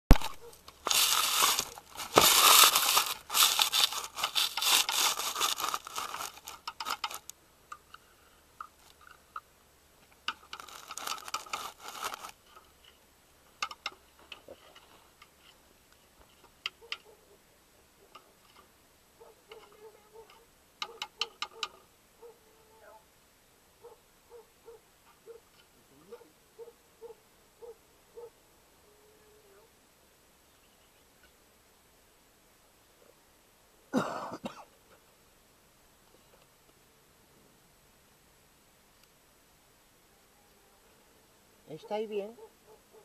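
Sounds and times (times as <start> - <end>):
rustling close to microphone: 0.1 - 7.3, 10.3 - 13.0.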